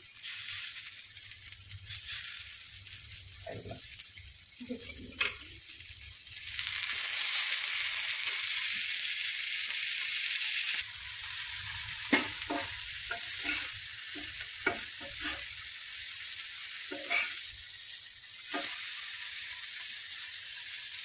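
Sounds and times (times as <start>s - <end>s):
fish sizzling in oil: 0.0s - 21.0s
steel spatula scraping pan: 12.0s - 15.6s, 16.9s - 17.5s, 18.5s - 18.8s.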